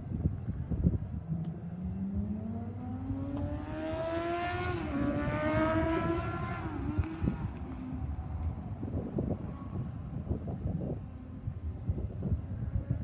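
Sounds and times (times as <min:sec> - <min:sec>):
vehicle engine accelerating: 0:01.6 - 0:08.4.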